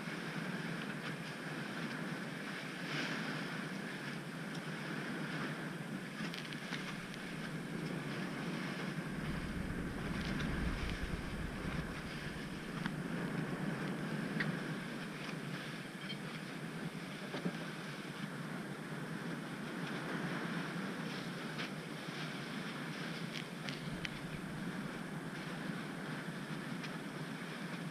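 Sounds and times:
low wind rumble: 0:04.8 - 0:16.0, 0:22.8 - 0:27.2
water splashing past hulls: 0:06.2 - 0:15.8, 0:23.6 - 0:26.0
wind buffeting microphone: 0:06.6 - 0:15.8, 0:22.8 - 0:26.8.

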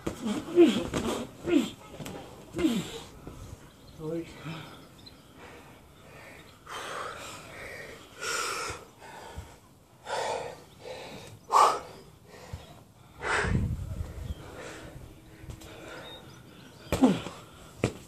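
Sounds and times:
heavy gasping breaths: 0:04.5 - 0:17.9.

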